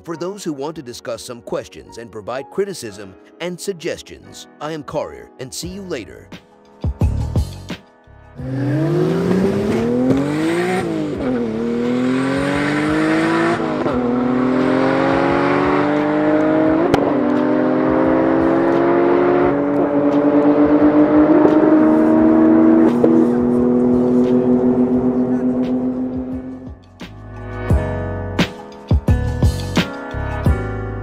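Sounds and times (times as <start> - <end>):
car engines at full throttle: 8.4 - 26.8.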